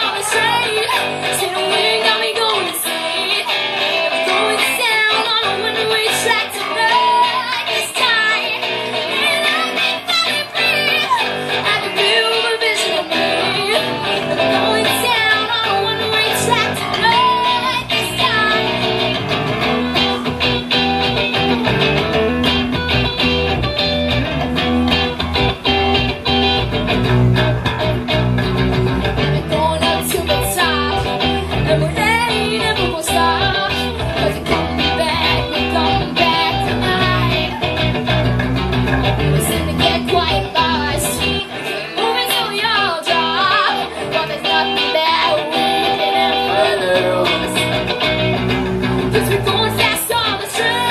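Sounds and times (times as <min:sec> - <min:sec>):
electric guitar: 0:00.0 - 0:50.9
electric bass: 0:13.1 - 0:50.9.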